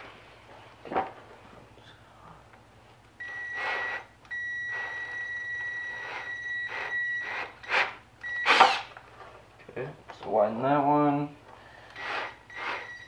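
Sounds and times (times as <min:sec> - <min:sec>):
cordless drill whining: 0:03.2 - 0:08.9, 0:11.8 - 0:13.0
drill bit scraping wood: 0:11.9 - 0:13.0.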